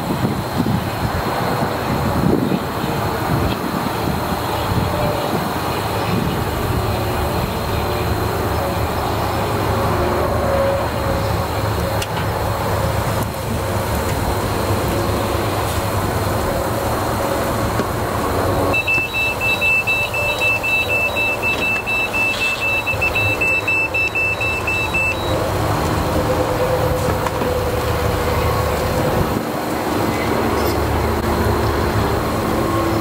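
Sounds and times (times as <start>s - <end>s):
thermometer alarm beeping: 18.7s - 25.4s.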